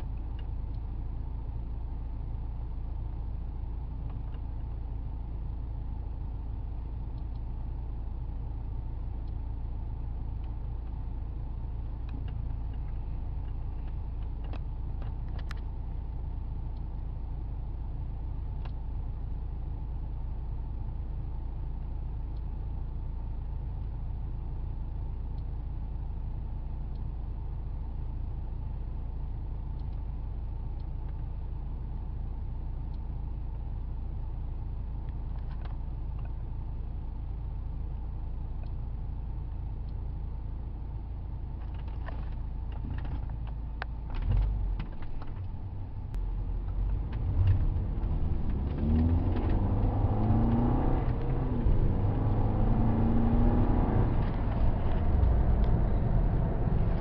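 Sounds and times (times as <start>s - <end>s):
car engine idling: 0.0s - 57.0s
car accelerating through gears: 46.8s - 57.0s.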